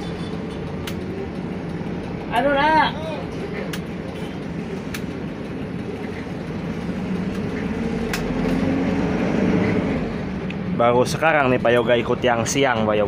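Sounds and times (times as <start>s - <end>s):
bus diesel engine running: 0.0s - 13.0s
sharp clicks: 0.8s - 1.1s, 4.8s - 5.1s, 7.3s - 8.6s.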